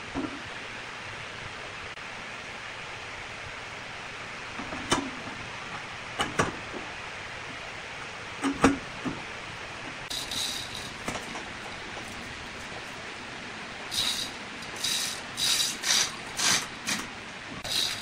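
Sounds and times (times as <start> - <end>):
steady hiss: 0.0 - 18.0
high scraping: 10.1 - 11.1, 13.9 - 18.0.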